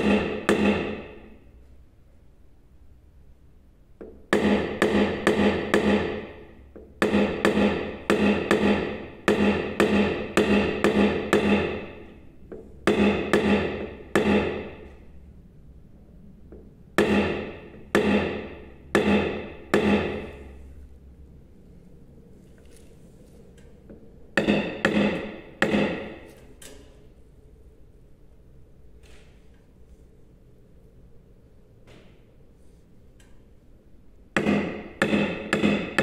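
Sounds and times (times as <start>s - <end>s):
hammer tapping on metal panel: 0.0s - 1.2s, 4.0s - 15.0s, 16.5s - 20.4s, 23.9s - 26.3s, 34.3s - 36.0s.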